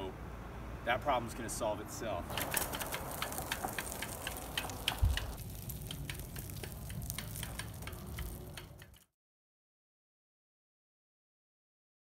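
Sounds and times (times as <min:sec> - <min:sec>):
irregular ticking clicks: 0:02.3 - 0:09.1.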